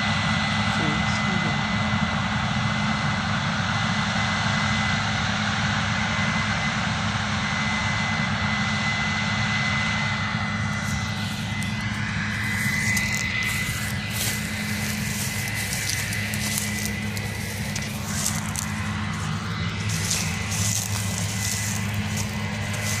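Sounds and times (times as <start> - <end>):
combine engine and threshing drone: 0.0 - 23.0
thin high whine: 10.4 - 23.0.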